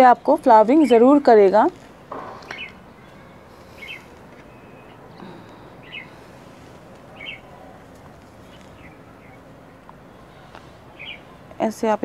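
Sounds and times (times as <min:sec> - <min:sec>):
small bird chirping: 0:02.4 - 0:06.2, 0:07.1 - 0:07.6, 0:11.0 - 0:11.4.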